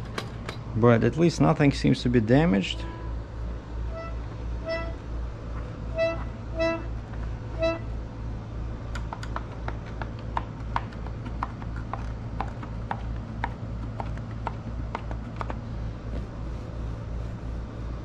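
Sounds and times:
air through accordion bellows: 2.8 - 8.2
accordion reed note: 3.9 - 5.2, 5.8 - 8.1.

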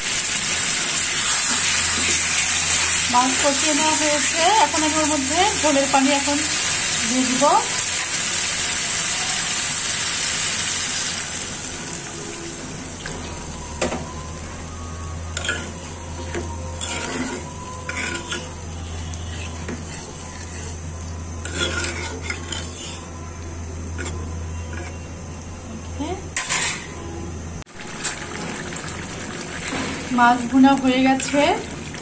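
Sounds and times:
fish sizzling in pan: 0.0 - 13.6, 27.7 - 32.0
spatula scraping and clinking pan: 15.4 - 18.5, 19.3 - 23.1.

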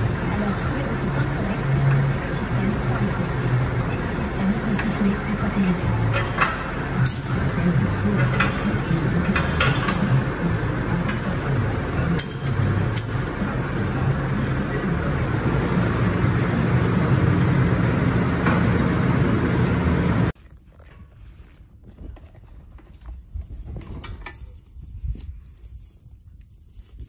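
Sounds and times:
tractor diesel engine running: 0.0 - 22.8
metallic clinks and knocks: 12.1 - 13.1.

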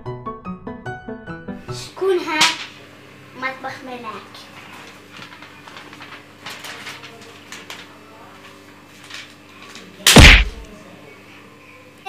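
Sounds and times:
paper sheet rustling: 4.4 - 10.6
hand thumping paper against wall: 10.1 - 10.6.

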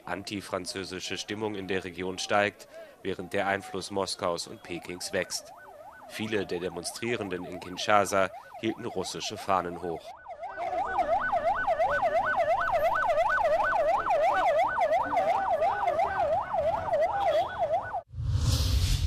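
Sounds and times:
police siren yelping: 4.0 - 18.1
whoosh with low boom: 18.1 - 19.0.

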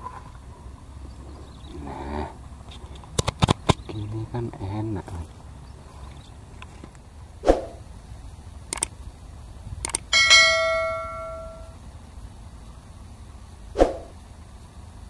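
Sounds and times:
notification bell ding: 10.2 - 11.8.

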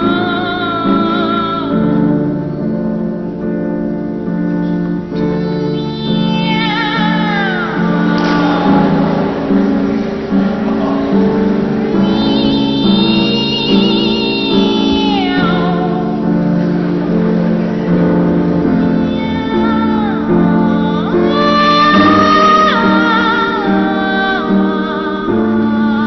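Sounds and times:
piano accompaniment: 0.0 - 26.0
boys singing meow-like glides: 5.3 - 26.0.

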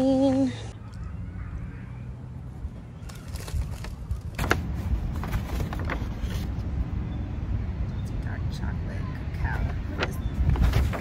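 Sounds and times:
paper bag rustling: 2.9 - 6.6, 10.0 - 11.0.

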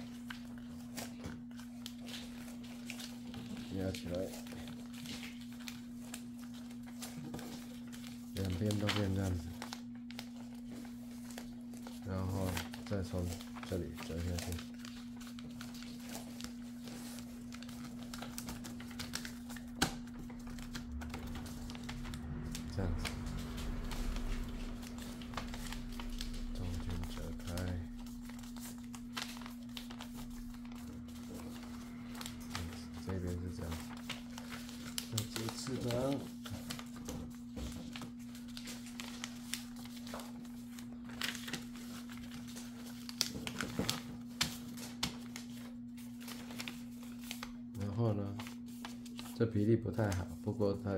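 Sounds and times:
steady low hum: 0.0 - 47.8
paper rustling and folding: 0.0 - 50.9
low hum: 20.0 - 35.1.

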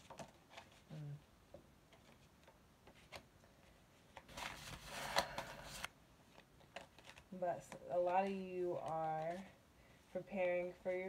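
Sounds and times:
cards shuffling: 0.0 - 1.0, 1.9 - 9.6.

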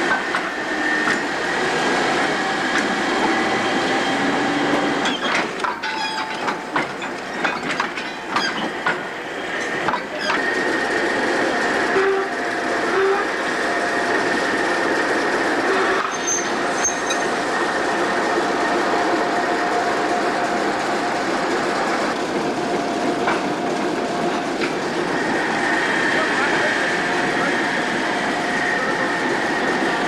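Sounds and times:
wheels rumbling on rails: 0.0 - 30.0
long steady wheel squeal: 0.4 - 6.4, 7.3 - 14.5, 15.5 - 17.9, 25.1 - 30.0.

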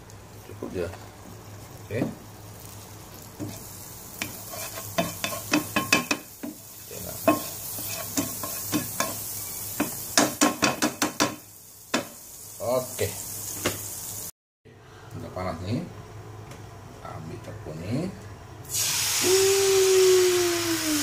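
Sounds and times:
butter sizzling in hot oil: 0.0 - 14.3, 18.7 - 21.0
spatula scraping and tapping pan: 4.2 - 6.6, 7.2 - 12.1.

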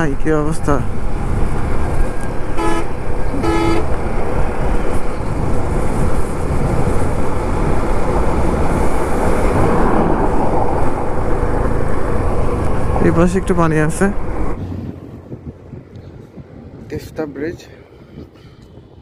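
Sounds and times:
motorcycle wind and road noise: 0.0 - 19.0
vehicle horn tooting: 2.5 - 3.9.

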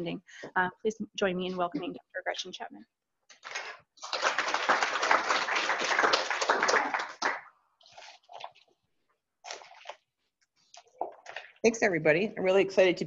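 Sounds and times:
audience applauding: 3.5 - 7.5.

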